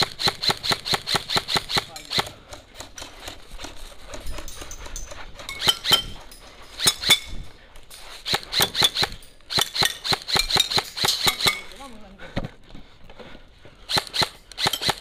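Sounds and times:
airsoft rifle shots: 0.0s - 3.4s, 8.2s - 11.8s, 13.9s - 15.0s.

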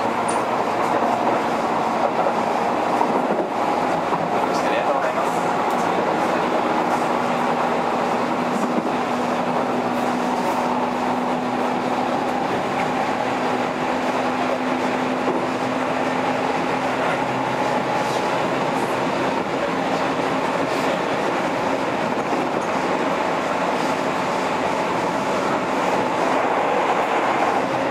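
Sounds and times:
low train hum: 0.0s - 27.9s
train wheels rumbling on rail: 0.0s - 27.9s
faint rail-joint clicks: 0.2s - 1.1s.

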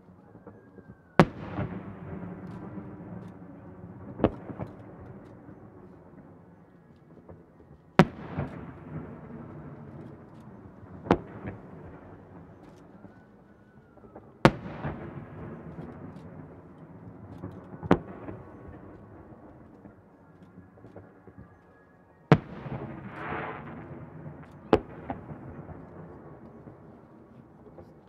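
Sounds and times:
distant fireworks bangs: 8.0s - 13.2s, 22.3s - 28.0s.

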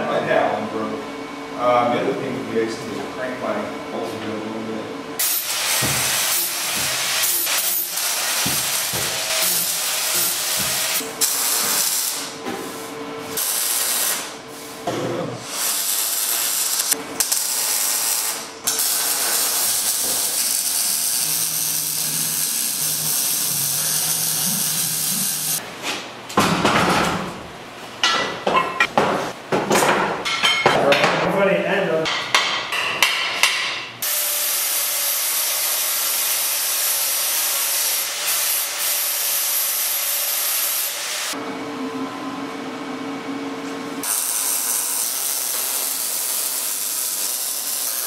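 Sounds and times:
welder arc crackling and hissing: 5.2s - 12.4s, 13.3s - 14.7s, 15.4s - 25.6s, 34.0s - 41.4s, 44.0s - 48.0s.

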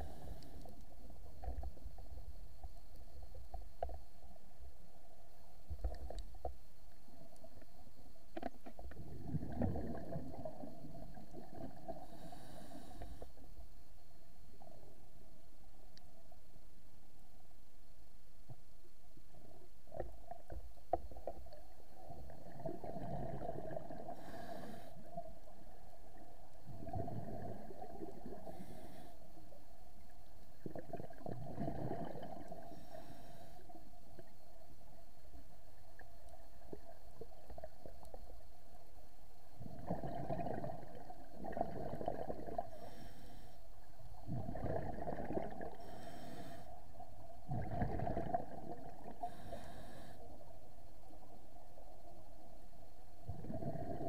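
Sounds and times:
exhaled bubbles rumbling: 8.8s - 12.2s, 19.9s - 24.4s, 25.3s - 28.5s, 30.5s - 32.7s, 39.6s - 42.8s, 44.2s - 45.8s, 47.1s - 49.4s, 53.2s - 54.0s
regulator inhalation hiss: 24.2s - 25.1s, 45.8s - 46.8s, 49.2s - 50.4s.

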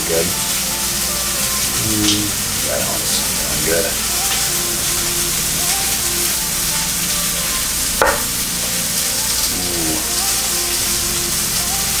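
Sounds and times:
chicken sizzling in a pan: 0.0s - 12.0s
knife knocking on cutting board: 8.0s - 8.3s.

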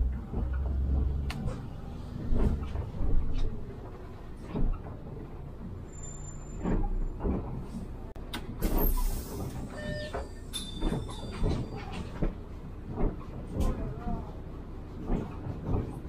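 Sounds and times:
bus engine and road rumble: 0.0s - 16.0s
hiss of air: 8.7s - 9.6s.

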